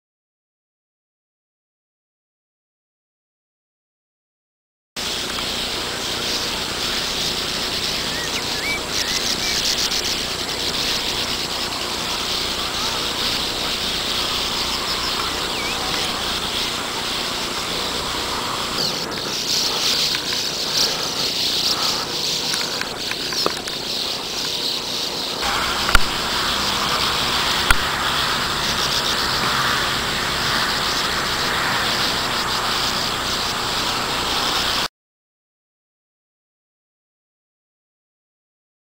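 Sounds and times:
birds twittering and chattering: 5.0 - 34.9
sharp clicks: 18.8 - 25.1.

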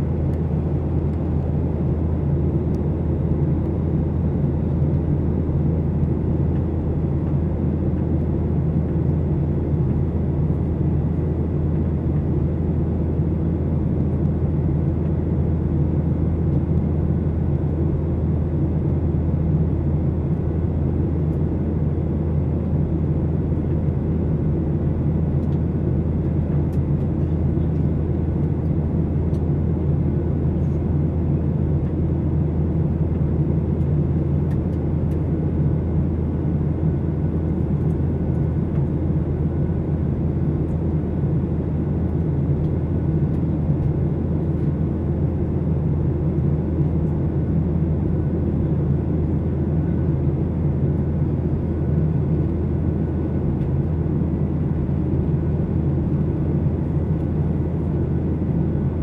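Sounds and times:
airplane cabin engine noise: 0.0 - 59.0
low hum: 0.0 - 59.0.

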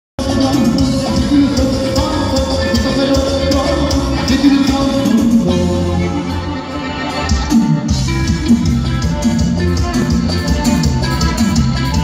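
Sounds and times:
live band music: 0.2 - 12.0.

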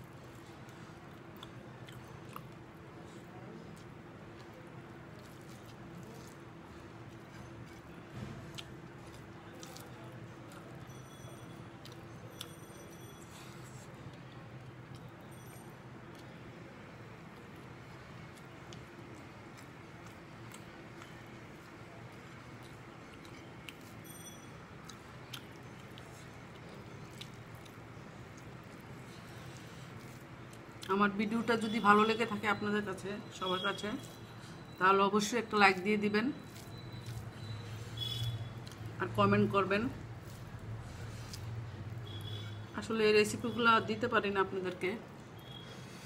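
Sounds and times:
light chewing: 0.0 - 31.2, 33.9 - 42.6
fingers mixing rice on a plate: 36.4 - 37.9.

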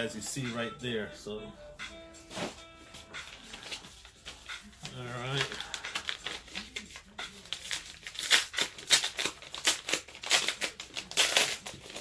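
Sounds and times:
package rustling and crinkling: 3.2 - 12.0.

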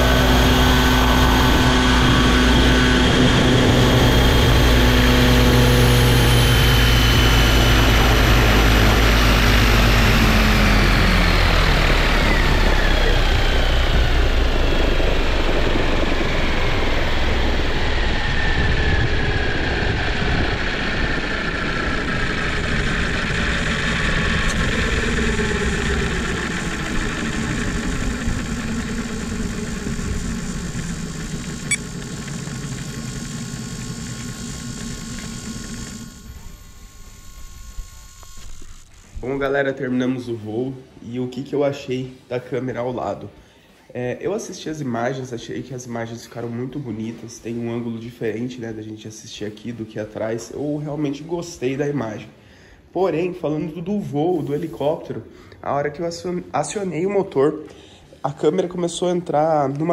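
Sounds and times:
helicopter rotor spooling down: 0.0 - 40.6.

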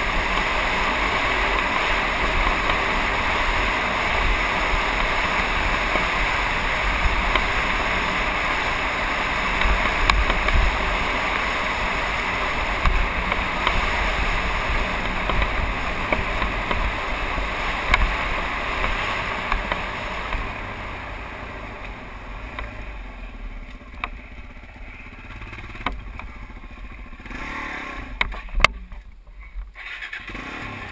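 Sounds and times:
motorbike engine running: 0.0 - 30.9.

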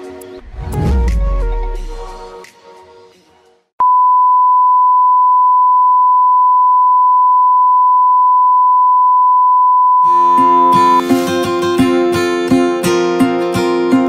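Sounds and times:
broadcast test tone beep: 3.8 - 11.0.

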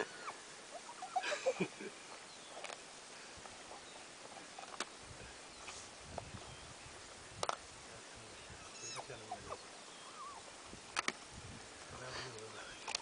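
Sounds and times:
animals squealing: 0.0 - 1.4, 8.5 - 10.5.

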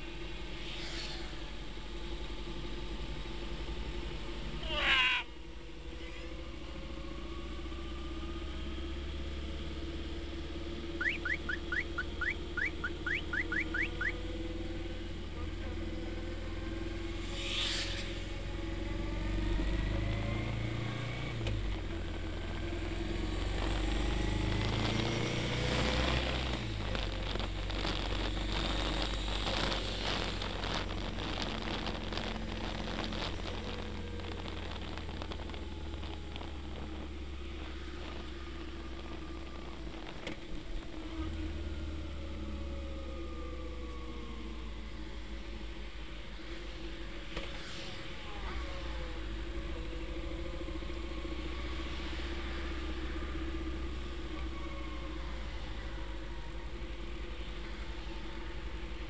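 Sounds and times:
motorcycle engines droning: 0.0 - 59.0
rapid crackling: 23.3 - 41.1.

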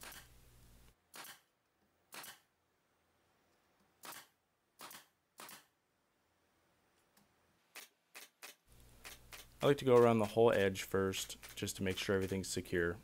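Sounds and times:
nail gun firing into wood: 1.1 - 1.4, 2.1 - 2.4, 4.0 - 5.7.

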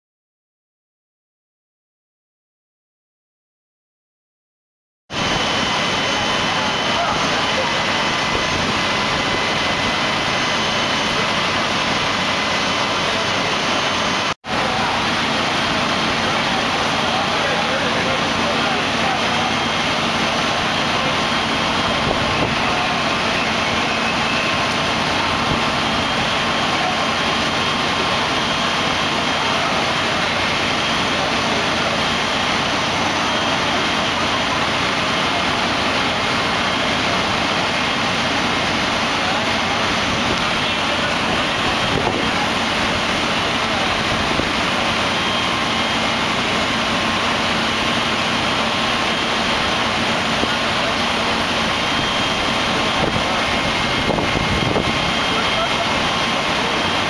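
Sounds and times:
fire engines rumbling: 5.1 - 57.0
voices: 5.2 - 57.0.

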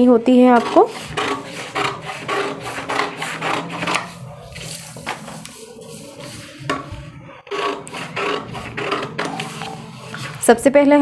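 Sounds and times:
paper sheet handled: 0.8 - 6.9.

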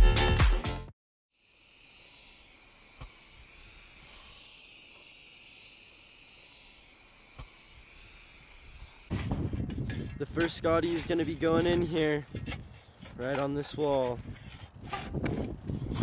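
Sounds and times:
spray can hissing: 1.4 - 9.1.

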